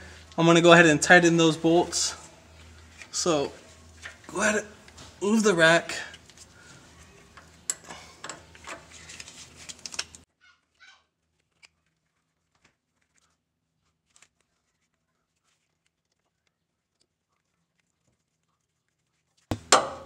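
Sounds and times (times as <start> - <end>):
low steady hum: 0.0 - 10.3.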